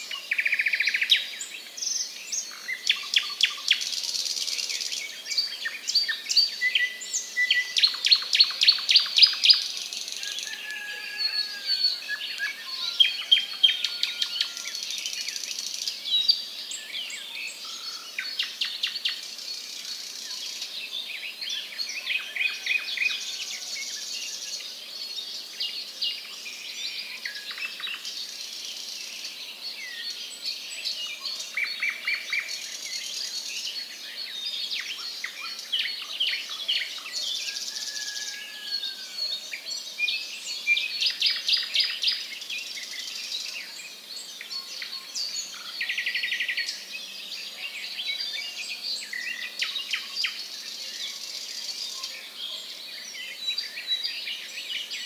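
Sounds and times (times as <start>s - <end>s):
small birds chirping: 0.0s - 10.6s.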